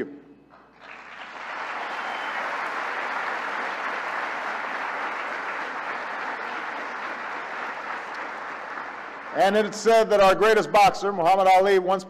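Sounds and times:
audience applauding: 0.7 - 10.4.

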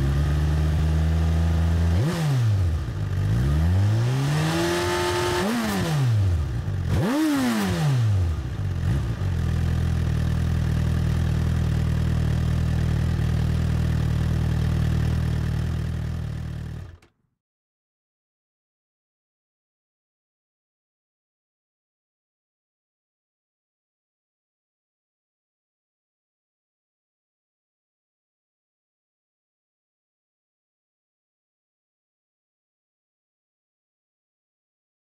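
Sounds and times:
motorcycle engine idling and revving: 0.0 - 17.1.

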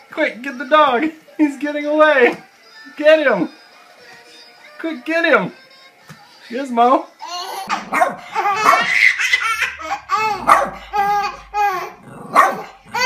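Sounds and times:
baby laughing: 7.2 - 13.0.

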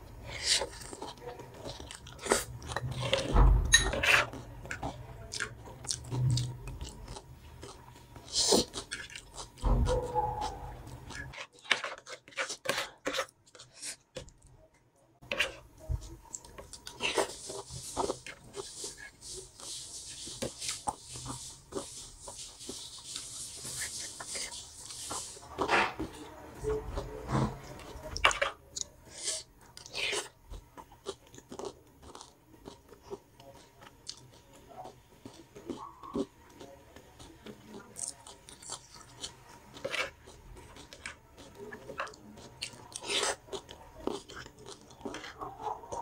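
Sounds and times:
cutlery scraping a plate: 2.7 - 4.4
crunching of crisp food: 4.0 - 14.1, 15.4 - 46.0
soft chewing clicks: 29.6 - 46.0.

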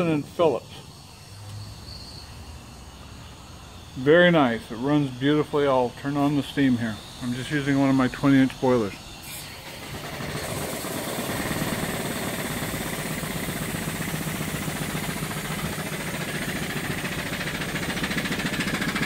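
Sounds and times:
steam engine running: 4.7 - 19.0.

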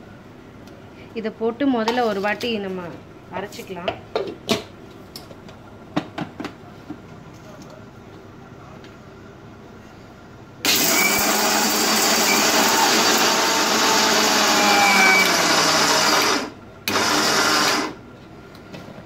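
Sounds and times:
mixer grinder grinding: 10.7 - 18.0.

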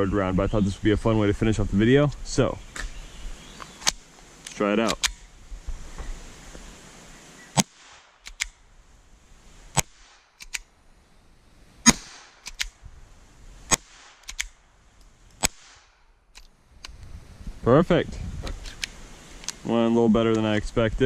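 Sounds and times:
pistol shots: 11.8 - 12.7, 13.7 - 14.6.

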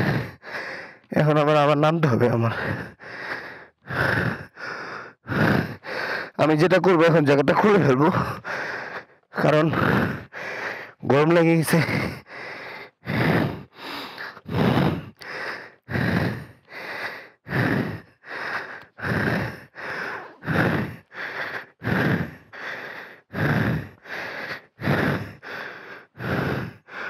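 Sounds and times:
man panting hard: 0.0 - 27.0.

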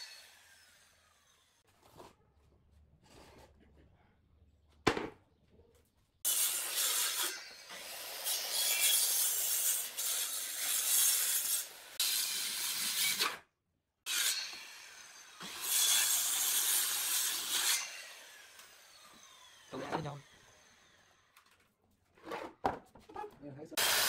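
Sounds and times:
circular saw cutting wood: 0.0 - 1.6, 6.3 - 13.4, 14.1 - 21.4, 23.8 - 24.0
wooden pallet knocking on concrete: 4.8 - 5.2.

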